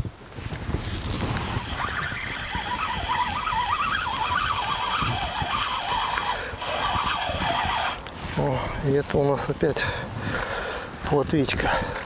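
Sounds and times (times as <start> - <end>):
fishing reel gears whining: 1.6 - 8.0.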